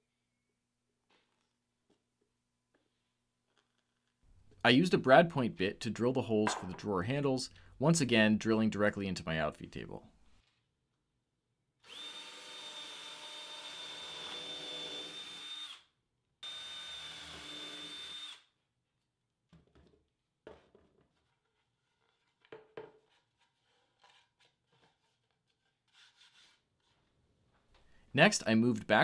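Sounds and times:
power drill boring wood: 11.8s - 18.5s.

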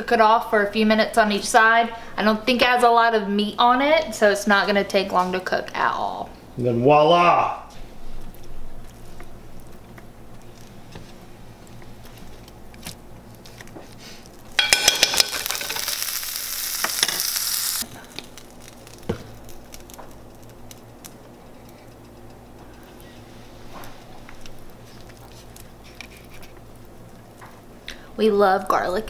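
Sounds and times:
hot oil sizzling in a frying pan: 14.6s - 20.8s.

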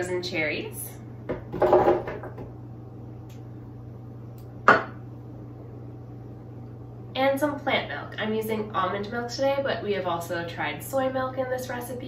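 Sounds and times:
steady low hum: 0.0s - 12.0s
glass bowl knocking on counter: 1.3s - 2.4s, 4.6s - 5.0s.

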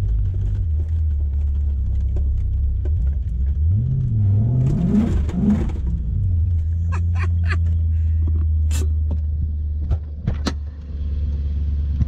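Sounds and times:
cab rattling clicks and knocks: 0.0s - 3.7s
engine drone inside truck cab: 0.0s - 12.0s.

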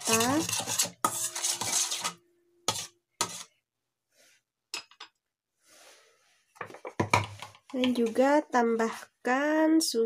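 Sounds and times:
spoon scraping metal bowl: 0.0s - 3.6s.

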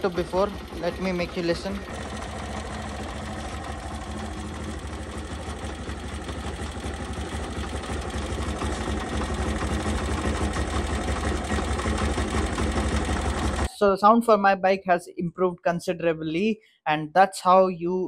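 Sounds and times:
motorcycle engine idling: 0.0s - 13.7s.

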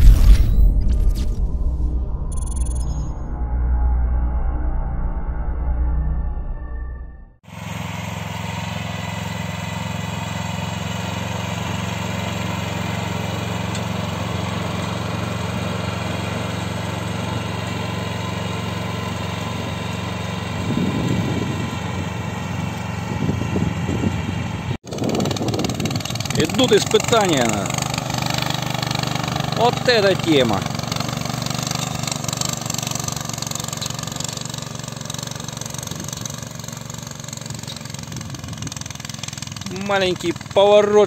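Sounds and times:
small tractor engine running: 7.4s - 41.0s
harrow dragging over soil: 7.5s - 41.0s.

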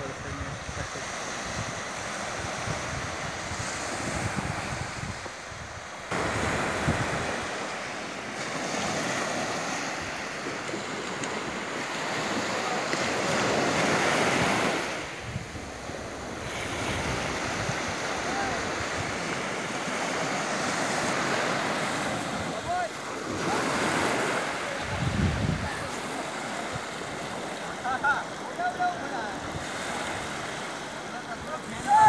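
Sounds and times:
wind buffeting microphone: 0.0s - 7.6s, 13.0s - 19.5s, 24.7s - 26.0s
surf washing onto sand: 0.0s - 32.0s.

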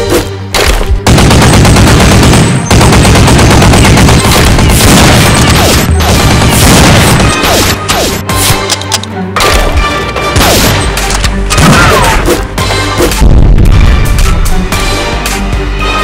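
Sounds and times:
machine-gun fire bursts: 0.6s - 8.2s.

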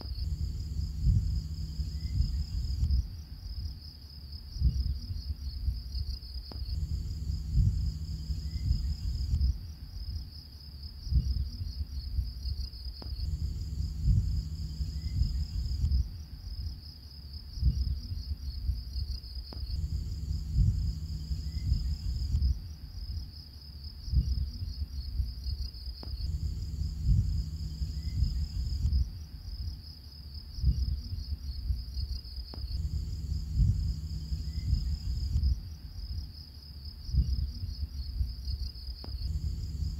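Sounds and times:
low rumble: 0.0s - 3.8s, 4.5s - 10.2s, 11.0s - 16.8s, 17.6s - 22.8s, 26.0s - 29.7s, 32.5s - 36.2s, 39.0s - 39.9s
crickets chirping: 0.0s - 39.9s.

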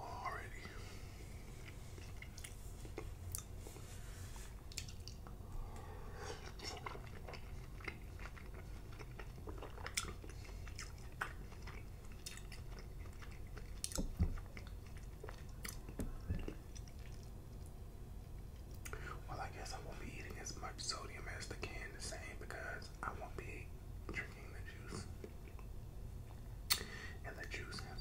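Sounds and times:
wet chewing and lip-smacking: 1.5s - 3.8s, 4.6s - 5.4s, 6.4s - 17.8s, 26.3s - 26.9s.

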